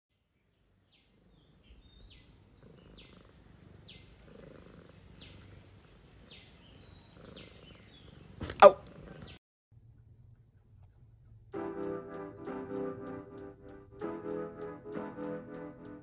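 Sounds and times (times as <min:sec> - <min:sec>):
cat purring: 0:00.6 - 0:11.6.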